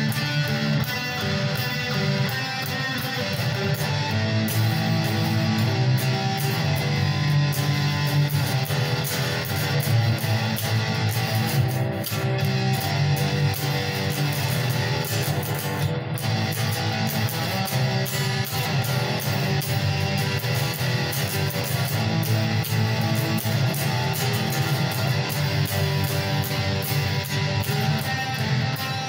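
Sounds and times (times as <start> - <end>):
electric guitar picked and strummed: 0.0 - 29.0.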